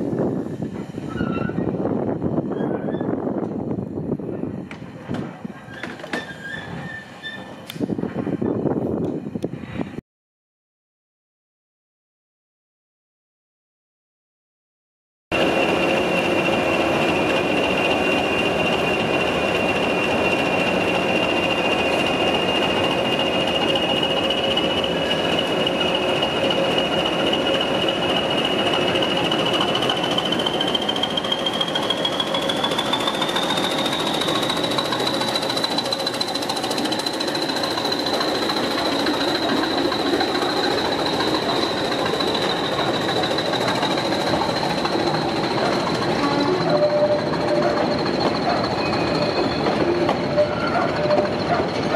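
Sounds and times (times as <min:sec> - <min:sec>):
diesel locomotive engine running: 0:00.0 - 0:10.0, 0:15.3 - 0:51.9
high turbocharger whistle: 0:15.4 - 0:36.1.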